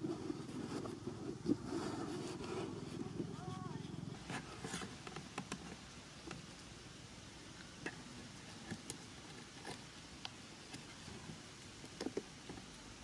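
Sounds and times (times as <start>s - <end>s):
cardboard box and stick handled: 0.0s - 5.8s.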